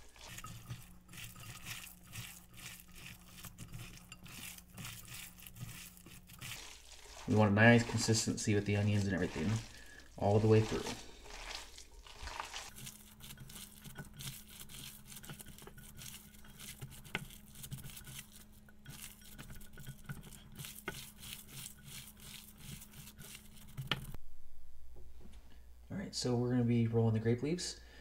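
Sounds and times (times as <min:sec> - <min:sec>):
squelching of meat kneaded by hand: 0:00.0 - 0:23.8.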